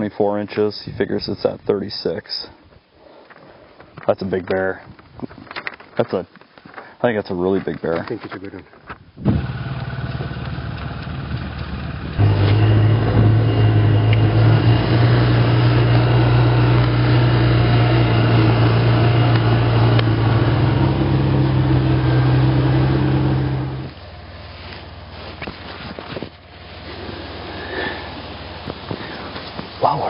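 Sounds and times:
utility vehicle engine running: 9.3s - 25.7s.

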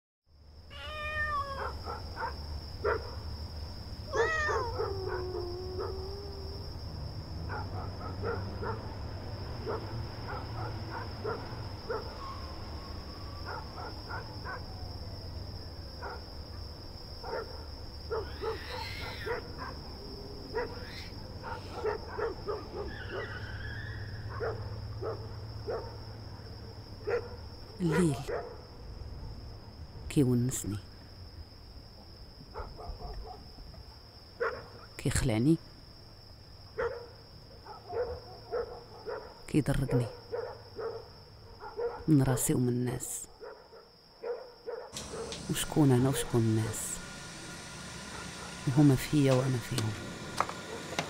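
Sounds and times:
cats meowing: 0.7s - 1.8s, 4.1s - 6.6s
thin high whine: 45.0s - 51.0s.

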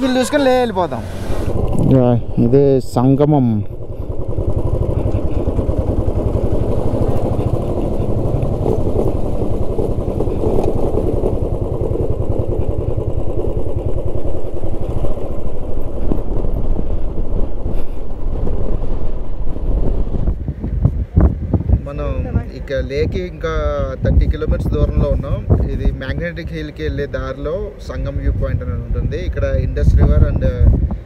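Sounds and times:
motorcycle engine running: 0.0s - 22.4s.

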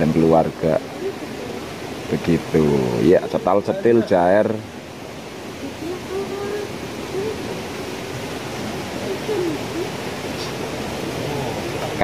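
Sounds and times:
faint distant voices: 5.4s - 12.0s.

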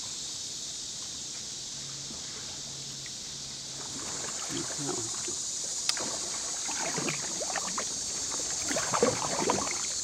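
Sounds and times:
steady high hiss: 0.0s - 10.0s
paddle splashing water: 2.0s - 10.0s.

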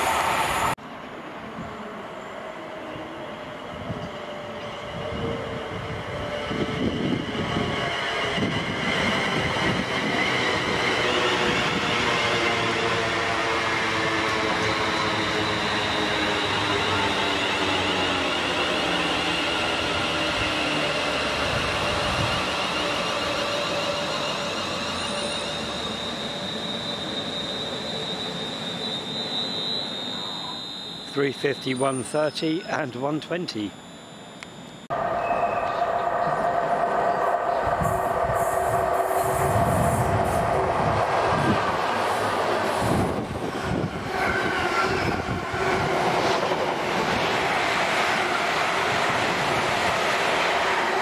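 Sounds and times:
high steady whine: 30.0s - 36.5s
train rumble: 34.9s - 51.0s.

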